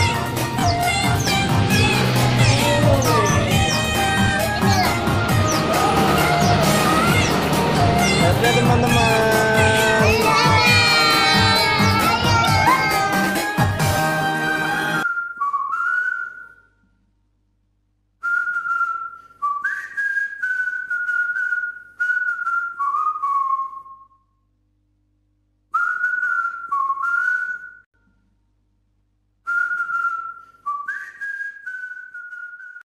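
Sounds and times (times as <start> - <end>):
person whistling a tune: 2.5 - 13.0, 15.0 - 16.7, 18.2 - 24.3, 25.7 - 27.9, 29.5 - 32.8.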